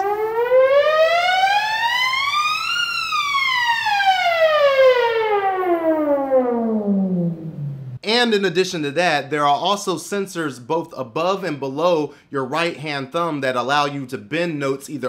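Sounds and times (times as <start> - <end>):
synth note gliding: 4.2 - 8.0.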